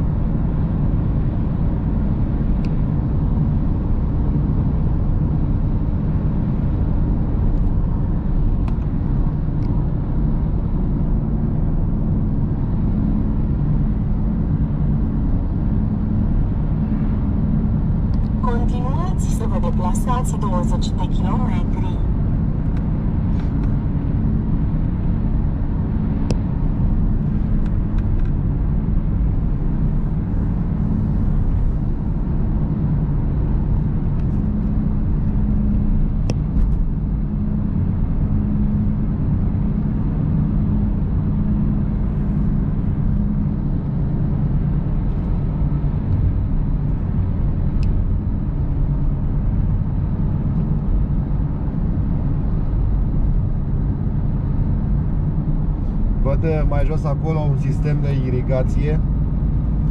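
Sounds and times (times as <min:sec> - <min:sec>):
car engine drone: 0:00.0 - 0:59.9
road rumble: 0:00.0 - 0:59.9.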